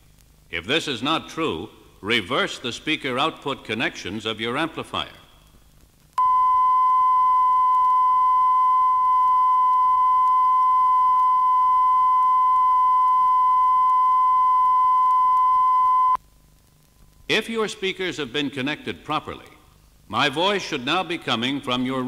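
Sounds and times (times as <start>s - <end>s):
steady test tone: 6.2s - 16.2s.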